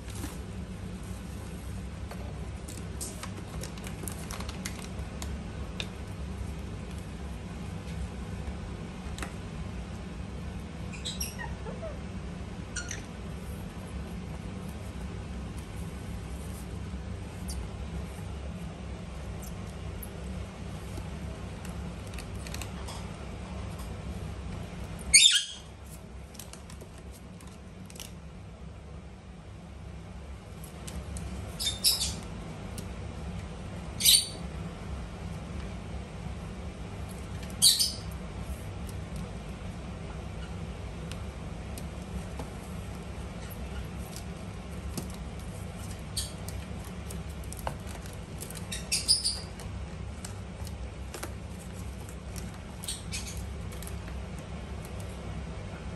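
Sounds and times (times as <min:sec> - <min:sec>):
steady low hum: 0:00.0 - 0:55.9
parakeet chirping: 0:10.9 - 0:12.0, 0:12.7 - 0:13.2, 0:25.1 - 0:25.7, 0:31.5 - 0:32.2, 0:33.9 - 0:34.5, 0:37.5 - 0:38.1, 0:45.9 - 0:46.5, 0:48.5 - 0:49.6, 0:52.7 - 0:53.6.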